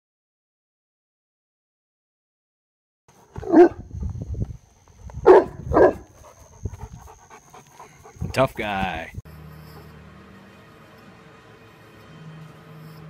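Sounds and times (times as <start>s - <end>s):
dog barking: 3.4s - 3.9s, 5.2s - 6.1s.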